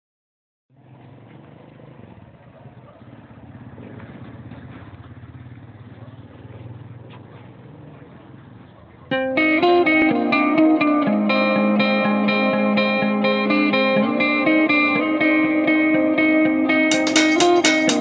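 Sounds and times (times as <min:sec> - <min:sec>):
street noise: 0:00.7 - 0:18.0
distorted electric guitar music: 0:09.1 - 0:18.0.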